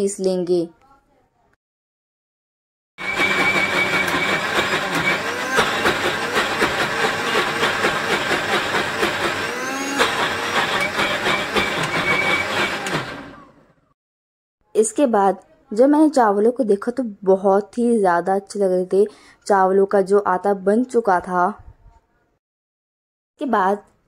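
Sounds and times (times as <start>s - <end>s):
mixer grinder motor grinding: 3.0s - 13.9s.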